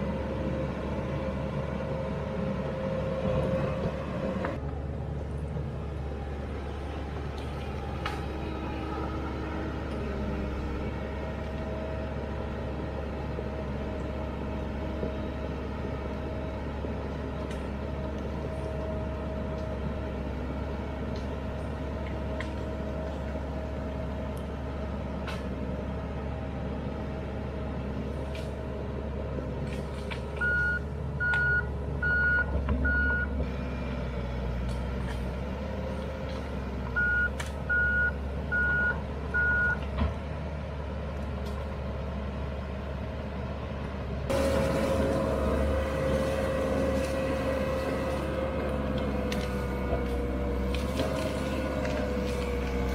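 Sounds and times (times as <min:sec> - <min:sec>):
diesel engine running: 0:00.0 - 0:52.9
reverse alarm beeps: 0:30.4 - 0:33.3, 0:37.0 - 0:39.8.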